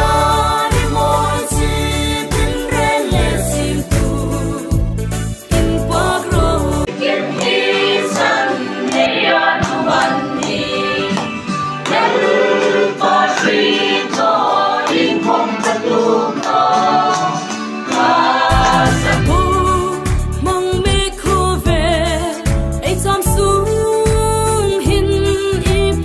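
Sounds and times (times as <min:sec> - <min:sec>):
music track with deep bass: 0:00.0 - 0:06.9, 0:18.4 - 0:26.0
group singing a hymn: 0:00.0 - 0:20.1.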